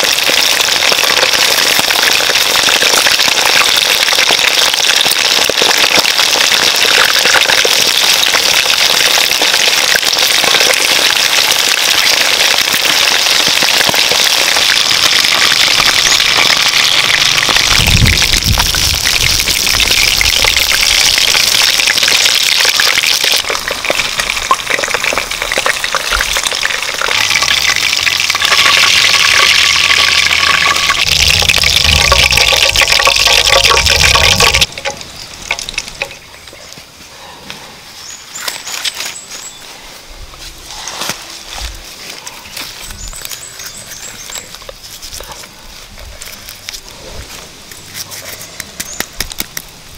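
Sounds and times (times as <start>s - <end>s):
oil sizzling and crackling: 0.0s - 36.9s.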